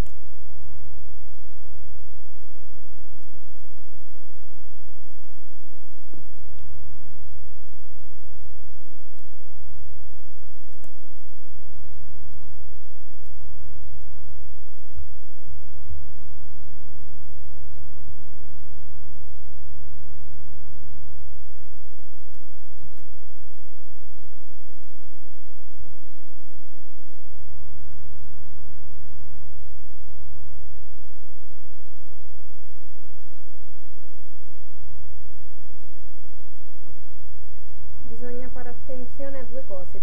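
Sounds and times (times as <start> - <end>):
electrical mains hum: 0.0 - 40.0.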